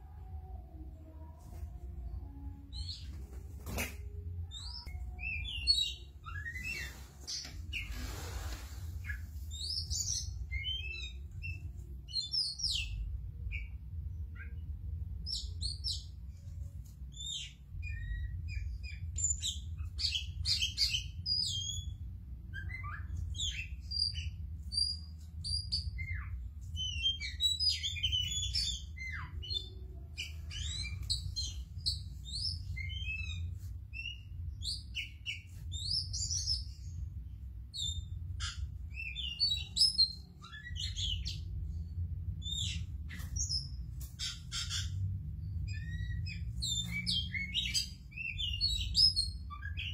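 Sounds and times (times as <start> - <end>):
songbird singing: 17.1 - 49.9.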